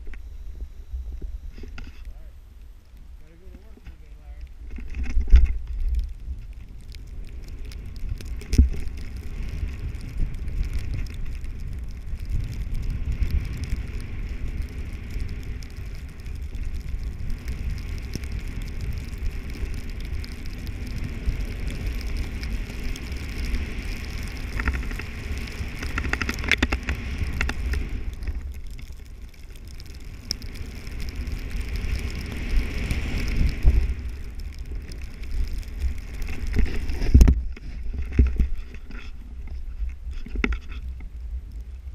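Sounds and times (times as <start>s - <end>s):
wind rumbling on microphone: 0.0s - 41.9s
skis hissing on snow: 30.5s - 37.8s.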